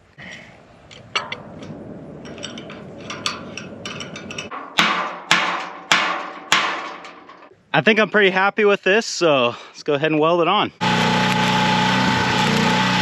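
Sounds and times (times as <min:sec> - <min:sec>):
ringing metal strikes: 0:01.2 - 0:07.5.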